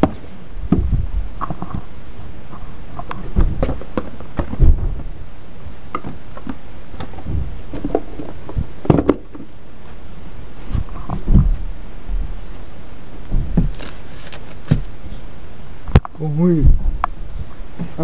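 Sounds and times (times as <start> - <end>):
microphone jostling: 0.0 - 5.2, 7.0 - 9.5, 10.6 - 12.6, 13.2 - 15.2, 15.9 - 18.0
rummaging in a box: 13.7 - 14.7.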